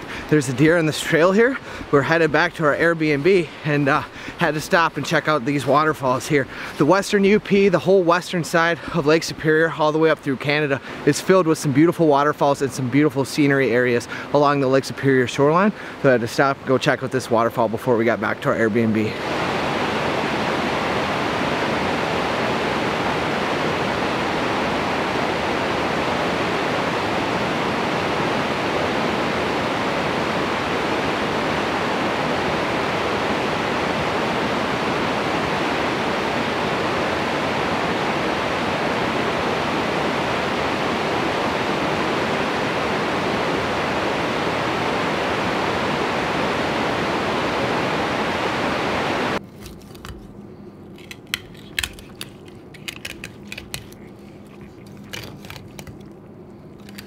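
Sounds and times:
rapids roaring: 0.0s - 11.1s, 18.9s - 49.4s.

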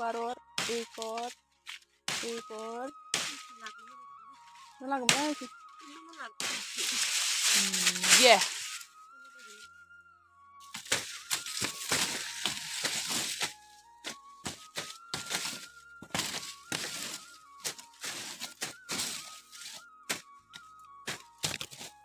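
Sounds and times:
simple background melody: 0.0s - 22.0s
sickle chopping branches: 0.6s - 3.8s, 4.4s - 8.9s, 10.6s - 22.0s
leaves rustling: 4.4s - 9.7s, 10.7s - 13.8s, 14.6s - 19.8s.

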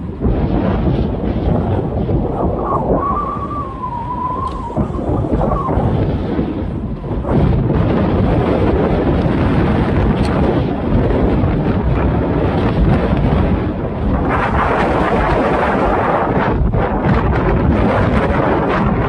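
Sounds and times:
road noise: 0.0s - 17.1s
wind buffeting microphone: 0.0s - 19.0s
thin wavering whine: 1.1s - 7.7s.

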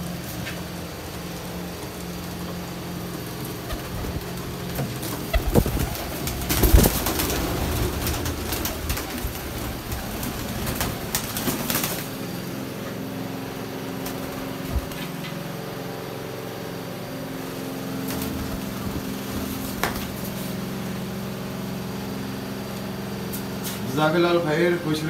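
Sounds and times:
steady low hum: 0.0s - 25.0s
pigeon wings flapping: 0.2s - 12.8s, 14.0s - 15.4s, 17.9s - 20.8s.

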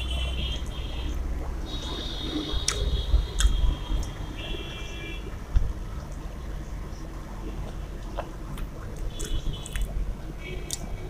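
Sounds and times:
chewing: 7.6s - 9.9s.

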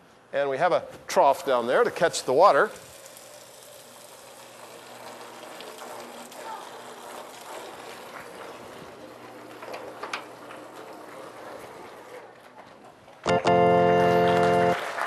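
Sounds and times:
water running into trough: 1.3s - 12.1s.

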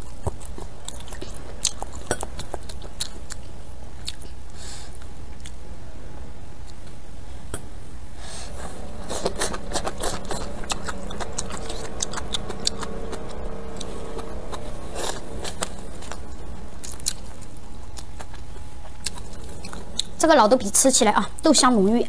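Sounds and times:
person chewing: 0.0s - 5.6s, 8.4s - 20.2s
steady low hum: 0.0s - 22.0s.

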